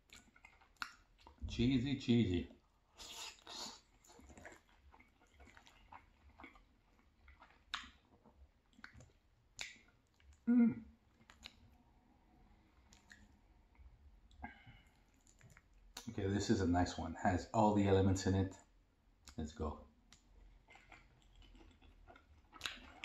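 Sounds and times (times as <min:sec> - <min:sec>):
wet chewing sounds: 0:00.0 - 0:01.5, 0:02.4 - 0:11.8, 0:12.5 - 0:16.1, 0:20.0 - 0:23.0.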